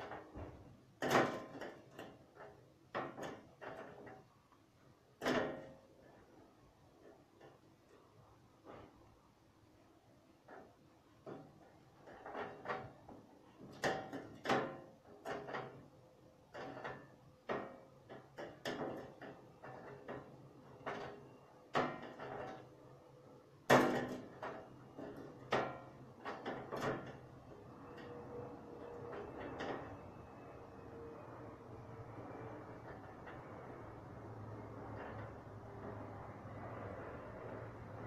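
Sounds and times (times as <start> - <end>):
objects knocking and clattering: 0.0 - 4.4, 5.2 - 6.4, 10.4 - 23.0, 23.6 - 30.5.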